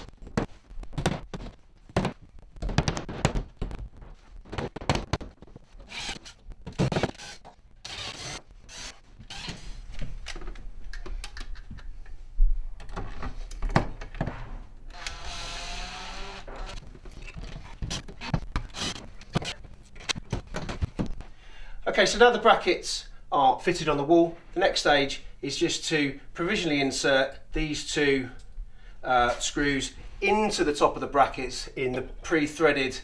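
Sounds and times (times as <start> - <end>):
cordless driver driving screws: 5.9 - 9.6, 14.9 - 16.8
knocks and clicks of wall fixings: 12.8 - 15.2.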